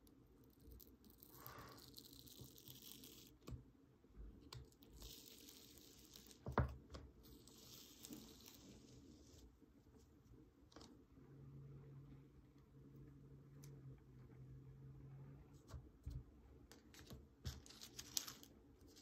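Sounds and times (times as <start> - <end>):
plastic film peeling rustle: 16.9 - 19.0.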